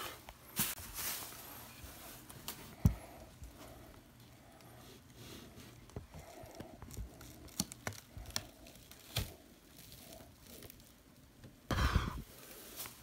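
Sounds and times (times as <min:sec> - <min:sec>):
plastic crinkling and rustling: 0:00.5 - 0:02.8, 0:05.6 - 0:11.5, 0:12.3 - 0:13.0.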